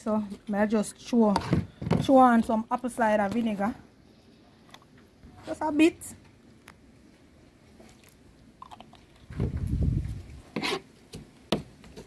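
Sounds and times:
knife cutting and scraping vegetables: 10.0 - 12.0.

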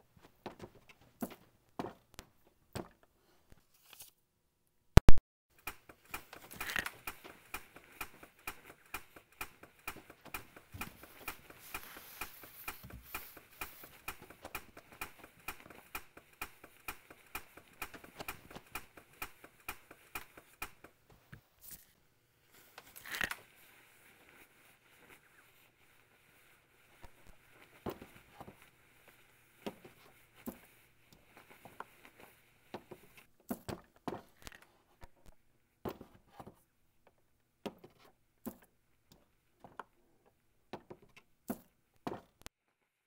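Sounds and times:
sharp clicks: 5.0 - 21.0
rustling: 5.5 - 36.7.

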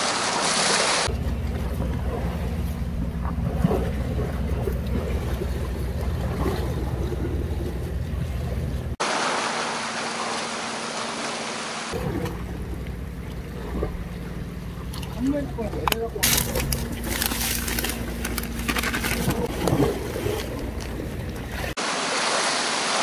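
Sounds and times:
surf washing against rocks: 21.6 - 23.0.

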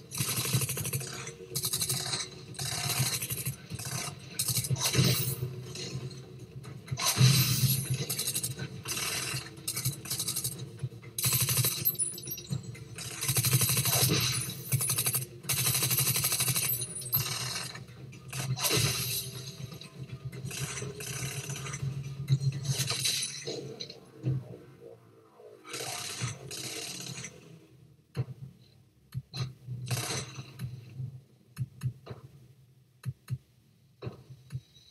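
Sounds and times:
rapid gunfire: 0.0 - 6.0, 7.0 - 10.6, 11.2 - 12.0, 13.0 - 19.5.

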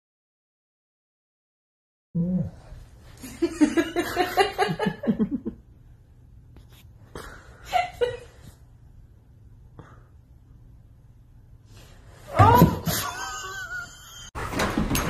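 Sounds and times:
person laughing: 12.7 - 14.3.

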